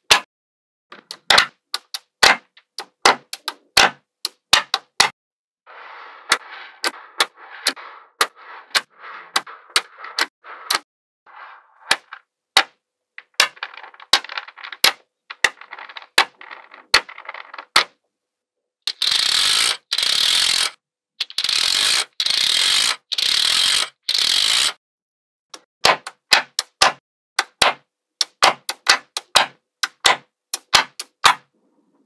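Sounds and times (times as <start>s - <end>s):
magnetic balls rattling: 13.2s - 17.8s
magnetic balls snapping together: 25.6s - 31.4s.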